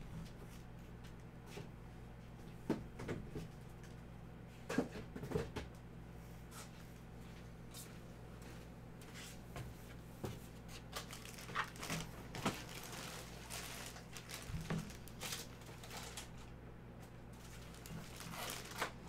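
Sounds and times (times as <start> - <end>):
low steady hum: 0.0 - 19.0
plastic bag crinkling: 10.8 - 16.5, 17.3 - 19.0.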